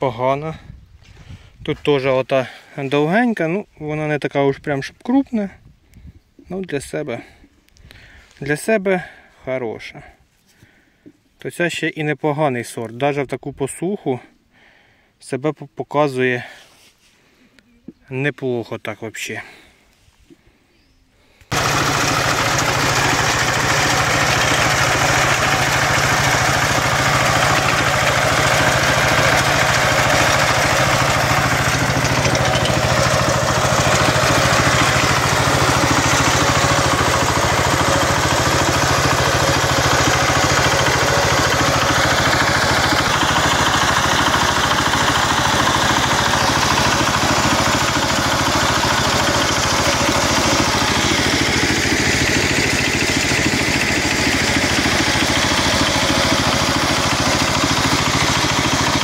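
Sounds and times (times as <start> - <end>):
diesel engine running: 21.5 - 59.0.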